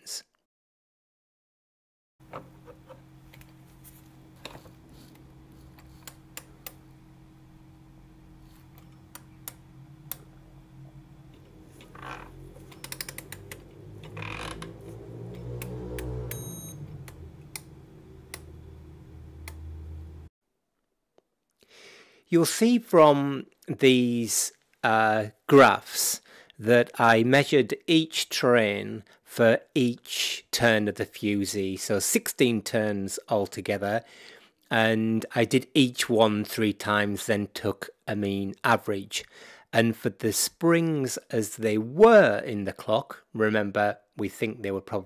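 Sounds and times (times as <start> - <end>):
low hum: 2.2 - 20.3
clock movement clicking: 11.3 - 14.7
short high beep: 16.3 - 16.8.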